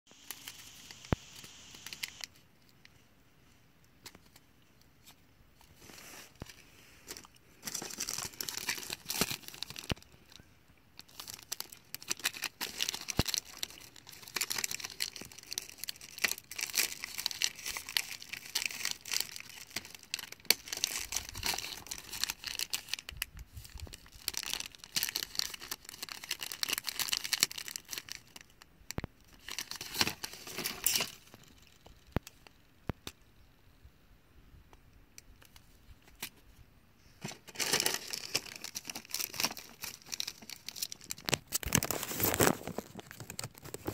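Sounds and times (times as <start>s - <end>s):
plastic packaging crinkling: 0.1s - 2.4s, 5.8s - 10.4s, 11.0s - 32.1s, 37.2s - 43.9s.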